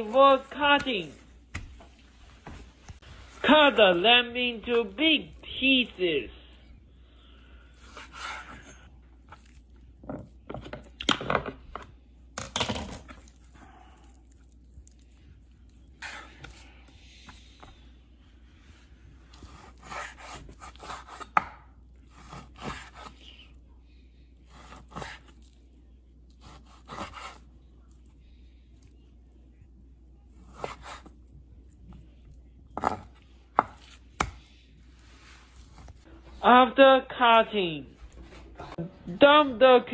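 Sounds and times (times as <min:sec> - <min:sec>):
knife cutting meat on wooden board: 0:07.8 - 0:09.6, 0:19.3 - 0:21.5, 0:22.1 - 0:23.2, 0:24.5 - 0:25.6, 0:26.4 - 0:27.4, 0:30.4 - 0:31.2.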